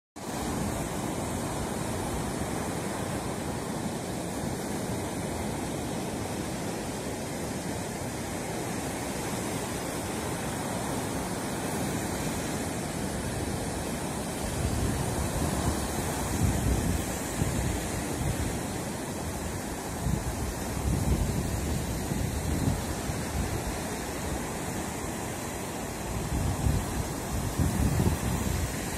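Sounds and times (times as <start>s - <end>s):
surf breaking on sandy beach: 0.2s - 28.9s
wind buffeting microphone: 11.3s - 28.9s.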